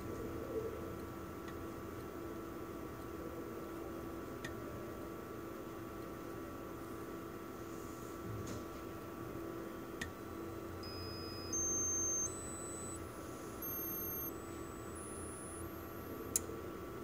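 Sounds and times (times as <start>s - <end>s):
steady electronic hum: 10.3s - 17.0s.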